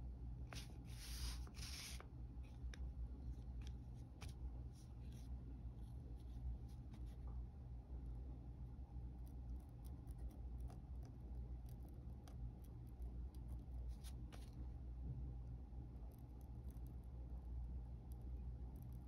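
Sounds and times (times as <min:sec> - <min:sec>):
steady low hum: 0:00.0 - 0:19.0
pen nib scratching paper: 0:09.2 - 0:14.5.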